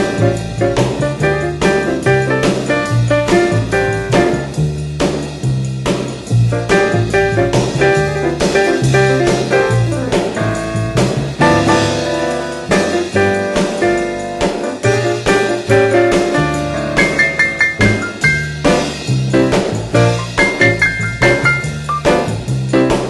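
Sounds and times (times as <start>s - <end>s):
drum kit swinging beat: 0.0s - 23.0s
jazz piano: 0.0s - 23.0s
plucked double bass: 17.6s - 22.7s.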